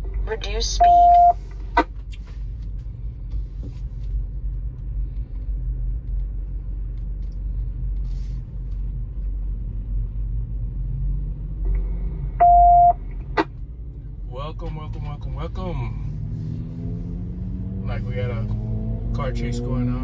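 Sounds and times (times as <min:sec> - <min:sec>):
electronic alert beep: 0:00.8 - 0:01.4, 0:12.4 - 0:13.0.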